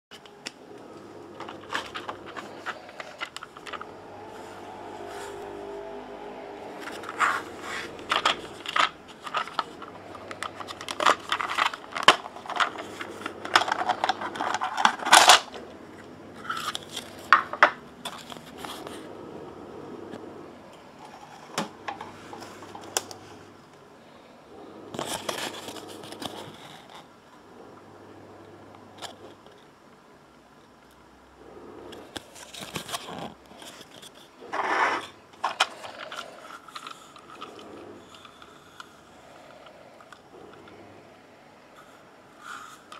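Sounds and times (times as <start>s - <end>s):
plastic case clicking and rattling: 6.7s - 15.6s, 35.4s - 38.5s.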